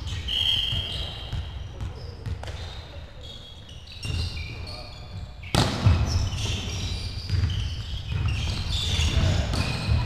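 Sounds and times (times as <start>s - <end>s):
sneakers squeaking: 0.0s - 10.0s
volleyball being hit: 5.5s - 6.1s.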